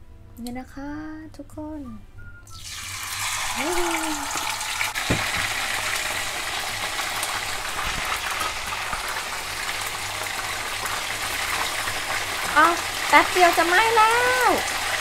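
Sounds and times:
chicken sizzling in hot oil: 0:02.5 - 0:15.0
voice humming: 0:03.6 - 0:04.6.

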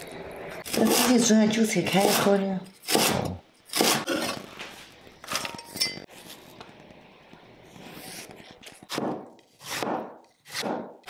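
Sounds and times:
cleaver chopping on cutting board: 0:08.9 - 0:11.0.

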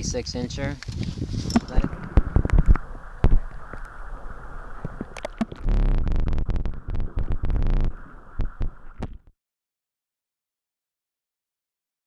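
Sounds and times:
water rumbling and gurgling underwater: 0:01.5 - 0:09.3.

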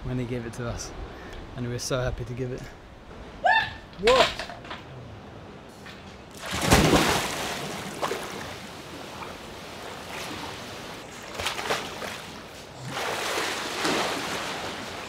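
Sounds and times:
water sloshing and lapping: 0:04.0 - 0:15.0
big splash into pool: 0:06.4 - 0:08.5.

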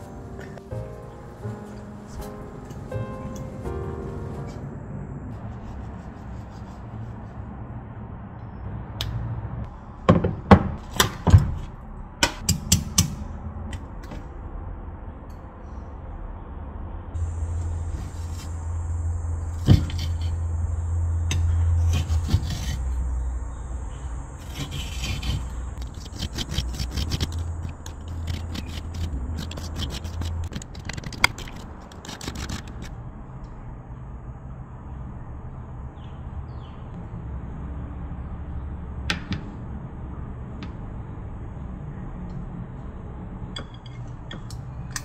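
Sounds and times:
spoon scraping ceramic bowl: 0:24.4 - 0:32.9.

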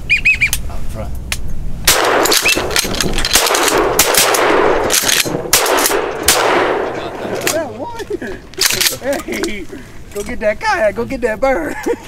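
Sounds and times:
shotgun fire with echoes: 0:01.9 - 0:07.6.

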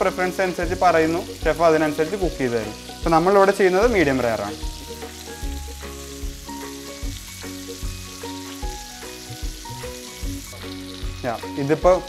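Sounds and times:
background music: 0:00.0 - 0:12.0
steaks sizzling in a frying pan: 0:00.0 - 0:12.0.

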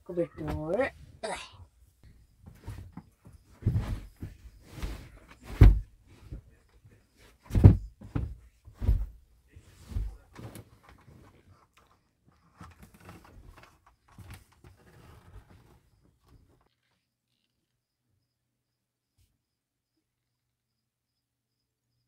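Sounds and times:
dull thumps and knocks: 0:02.4 - 0:06.5, 0:07.4 - 0:09.2.

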